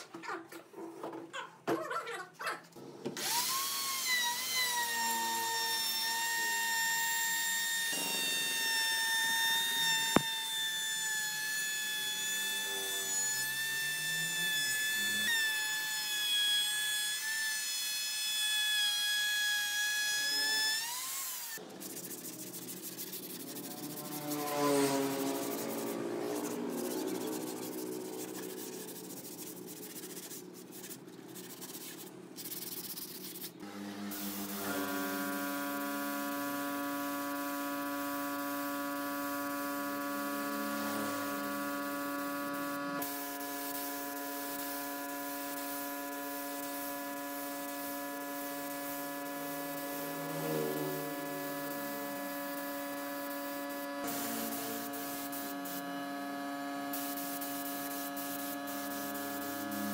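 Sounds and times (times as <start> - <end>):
spray gun hissing: 43.0 - 55.8, 56.9 - 59.9.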